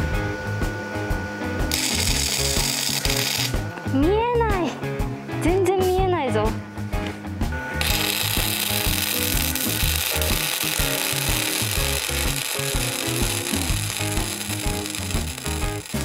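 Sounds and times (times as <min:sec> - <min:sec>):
background music: 0:00.0 - 0:16.0
arc welding crackling hiss: 0:01.6 - 0:03.8, 0:07.8 - 0:16.0.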